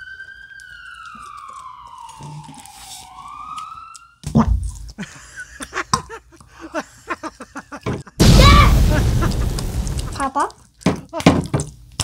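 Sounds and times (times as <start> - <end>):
children giggling: 5.0 - 10.2.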